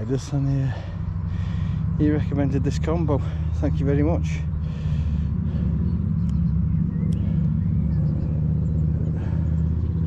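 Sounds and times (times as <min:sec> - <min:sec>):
faint clicks: 0:06.2 - 0:06.4, 0:07.0 - 0:07.3.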